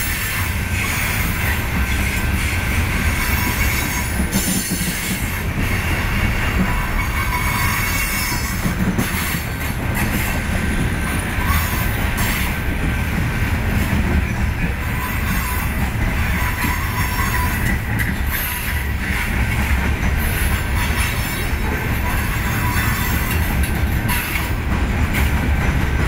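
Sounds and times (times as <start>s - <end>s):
steel wheels rumbling on rails: 0.0s - 26.0s
wheel flange squeal: 0.1s - 5.2s, 6.6s - 10.3s, 14.3s - 19.2s, 20.2s - 24.6s.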